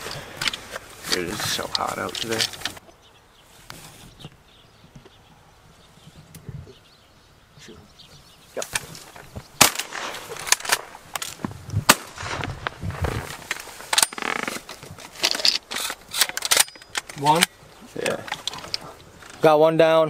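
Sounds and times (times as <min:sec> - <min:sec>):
shotgun shots: 0:09.6 - 0:11.0, 0:11.8 - 0:12.9.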